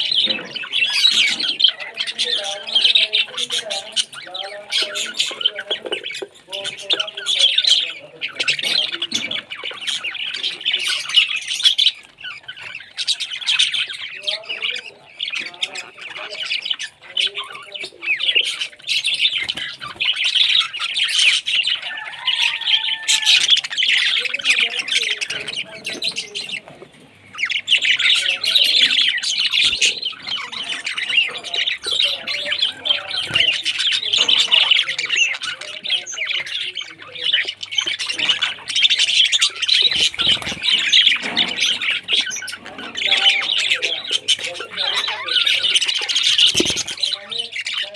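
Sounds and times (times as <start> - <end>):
budgerigars chattering: 0.0 - 47.9.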